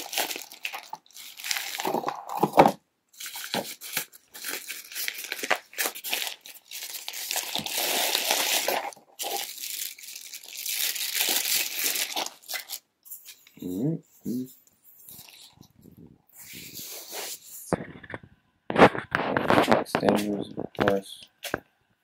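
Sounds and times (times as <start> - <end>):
plastic and fabric crinkling: 0.0 - 13.7, 14.9 - 15.9.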